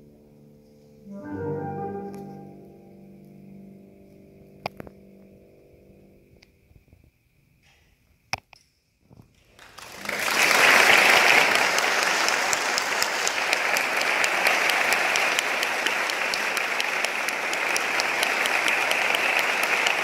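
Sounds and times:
audience applauding: 9.5s - 20.0s.

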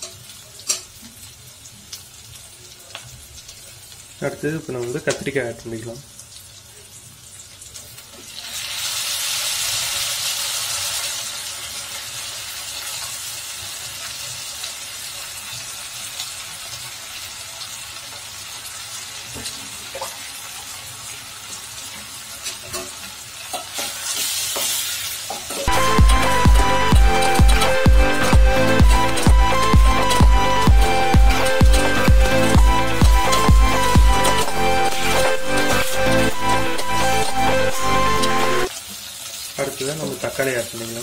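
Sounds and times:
vegetables sizzling in hot oil: 0.0s - 27.0s, 38.2s - 41.0s
music with a beat: 25.7s - 38.7s.

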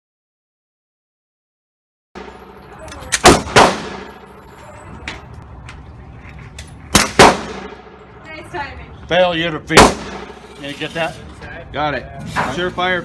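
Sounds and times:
suppressed pistol shots: 3.1s - 4.2s, 6.9s - 7.9s, 9.7s - 10.4s.

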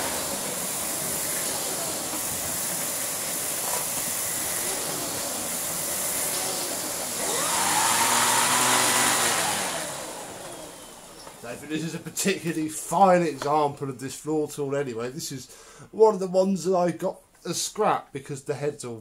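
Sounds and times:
vacuum cleaner running: 0.0s - 12.1s.

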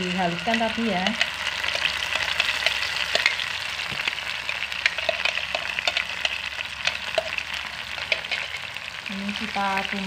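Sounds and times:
spice paste sizzling in oil: 0.0s - 10.0s
crackling pops: 0.5s - 8.4s.

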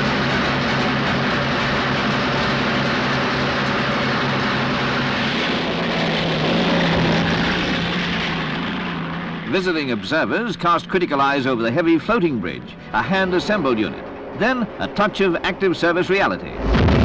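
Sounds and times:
tank engine running: 0.0s - 17.0s.

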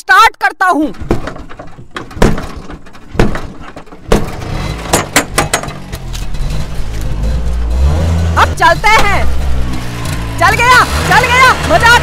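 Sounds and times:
starter lever clunking: 0.8s - 7.2s
engine clatters: 0.8s - 12.0s.

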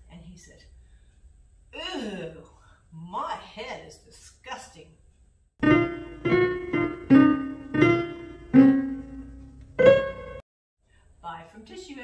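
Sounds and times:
piano phrase: 5.6s - 10.4s.

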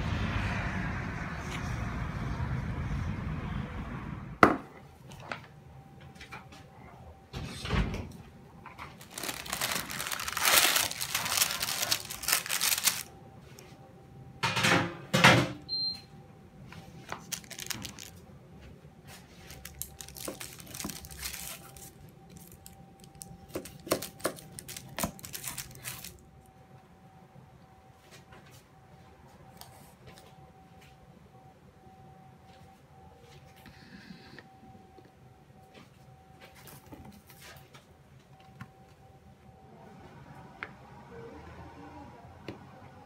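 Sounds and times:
baking paper rustling and crinkling: 8.8s - 13.1s, 17.0s - 18.2s, 19.0s - 26.2s.

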